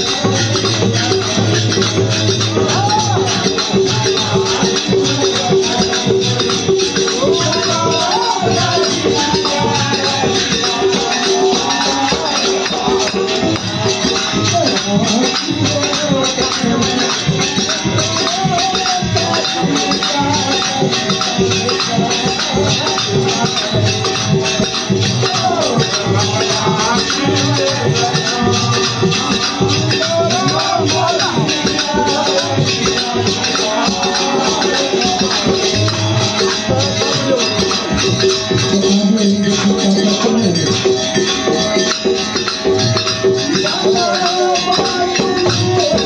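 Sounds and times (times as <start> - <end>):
hand cymbals jingling: 0.0 - 46.0
harmonium drone and melody: 0.0 - 46.0.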